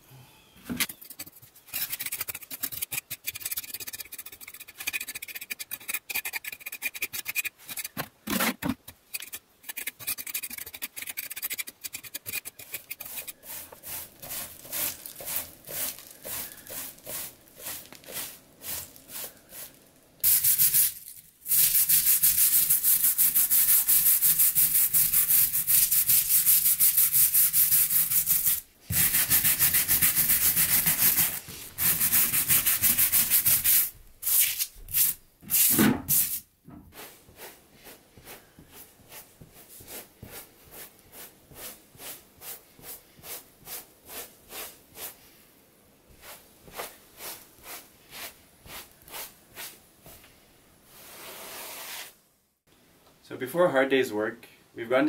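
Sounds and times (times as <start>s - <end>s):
hand brush scrubbing stones: 0.8s - 8.0s, 8.8s - 45.3s, 46.1s - 50.2s
broom sweeping grit on stone: 9.7s - 35.2s, 36.1s - 45.3s, 46.1s - 49.8s, 50.9s - 52.2s.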